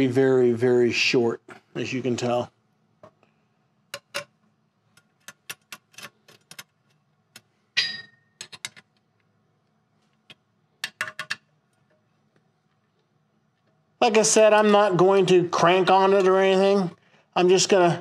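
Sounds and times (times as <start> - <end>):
ringing metal clink: 7.8 - 8.4.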